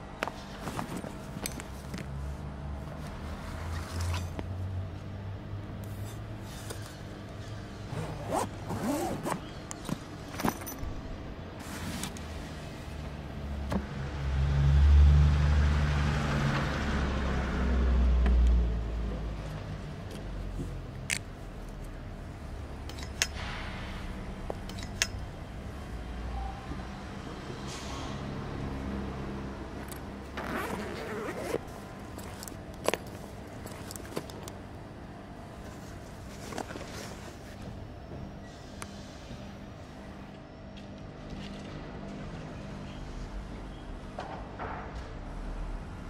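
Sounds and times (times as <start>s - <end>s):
zipper being pulled: 7.9s - 9.4s, 29.8s - 34.3s
case handling clicks and rubbing: 32.2s - 34.6s.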